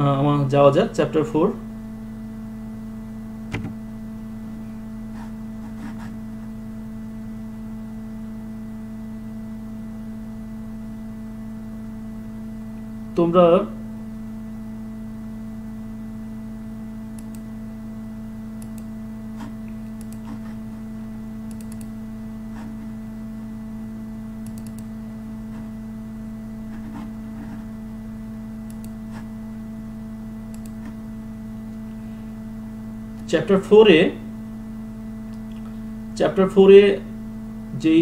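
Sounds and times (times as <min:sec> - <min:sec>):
electrical hum: 0:00.0 - 0:38.0
faint computer mouse clicks: 0:17.2 - 0:17.4, 0:18.6 - 0:18.9, 0:21.5 - 0:21.9, 0:24.4 - 0:24.9, 0:30.5 - 0:31.0.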